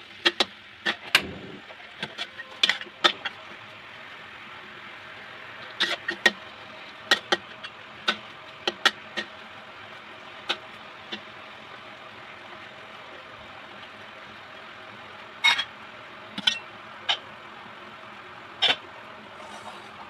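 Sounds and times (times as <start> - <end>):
metal spatula scraping wok: 19.4 - 20.0.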